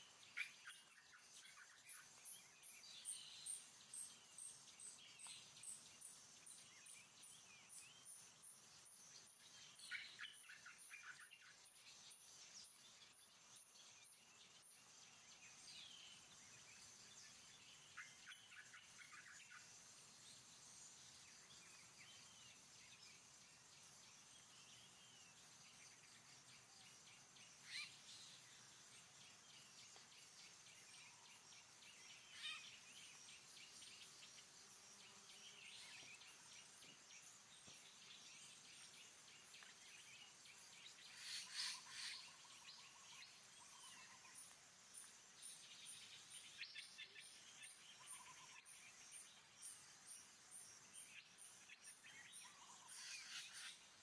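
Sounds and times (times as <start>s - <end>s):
bird chirps: 0.0s - 54.0s
steady high hiss: 0.0s - 54.0s
whistled bird calls: 40.9s - 44.3s.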